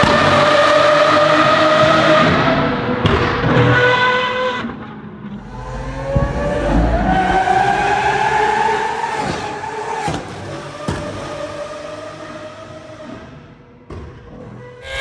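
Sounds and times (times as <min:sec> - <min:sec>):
car engine revving: 0:05.3 - 0:13.4.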